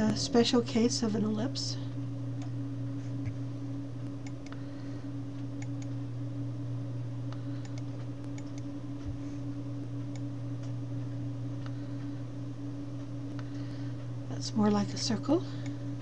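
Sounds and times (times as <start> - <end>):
low electrical hum: 0.0 - 16.0
computer mouse clicks: 5.6 - 5.9, 7.6 - 8.7.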